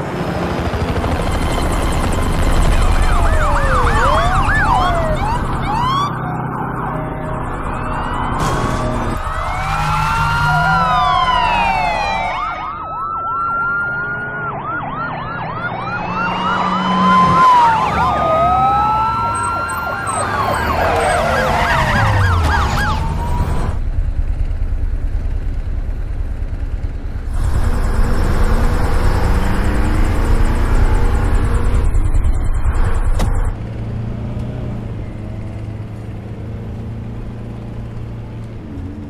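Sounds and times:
police sirens wailing and yelping: 0.4 - 23.8, 27.4 - 33.5
low vehicle rumble: 0.6 - 39.0.

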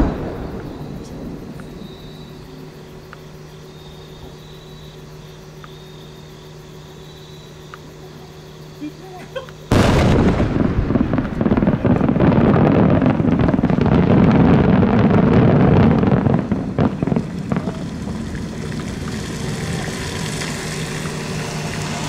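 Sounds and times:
sharp cracks: 0.0 - 2.4, 9.7 - 22.0
firework burst rumble and echo: 0.0 - 3.2, 9.7 - 22.0.

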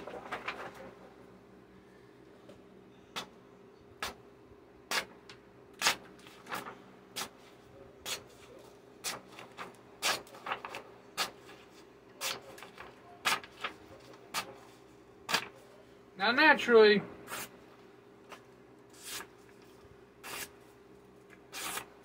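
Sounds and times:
sword slicing paper: 5.8 - 7.3, 9.0 - 11.4, 12.2 - 14.6, 15.3 - 15.5, 19.0 - 19.3, 20.2 - 20.6, 21.5 - 21.9.

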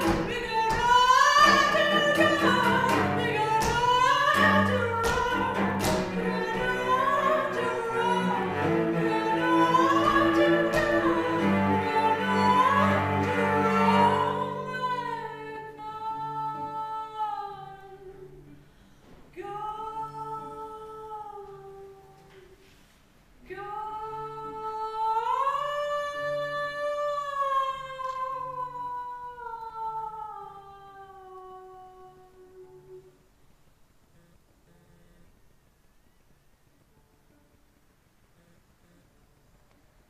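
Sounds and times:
cello bowed: 0.0 - 18.5
woman singing: 0.0 - 18.5, 19.3 - 22.6, 23.4 - 33.2.

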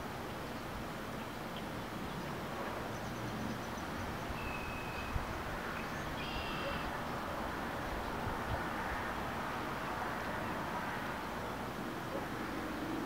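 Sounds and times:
faint bird calls: 5.8 - 7.0.

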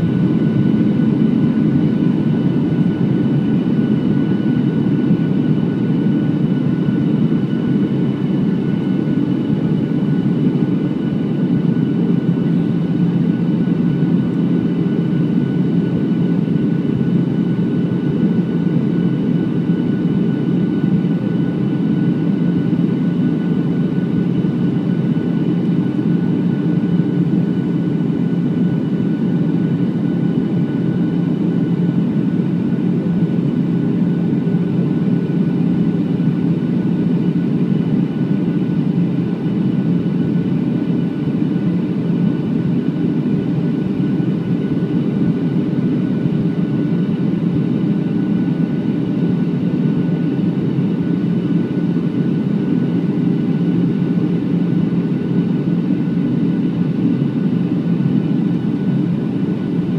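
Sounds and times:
airplane cabin engine drone: 0.0 - 59.9.

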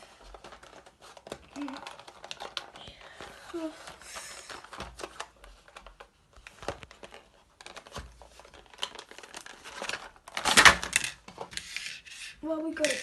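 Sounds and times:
crinkling and rustles: 0.0 - 13.0
cardboard packaging tearing: 6.8 - 10.9.

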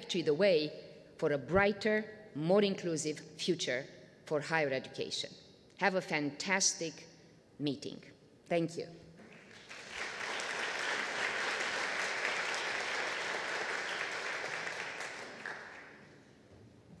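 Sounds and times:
audience applauding: 9.3 - 16.2.

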